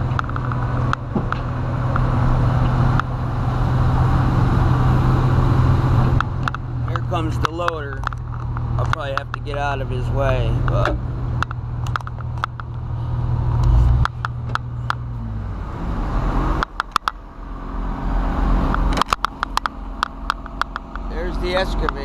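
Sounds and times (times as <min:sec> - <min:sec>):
excavator diesel engine droning: 0:00.0 - 0:22.0
sharp clicks and knocks: 0:00.1 - 0:03.1, 0:06.0 - 0:09.9, 0:10.6 - 0:12.8, 0:13.5 - 0:15.1, 0:16.6 - 0:17.2, 0:18.7 - 0:22.0.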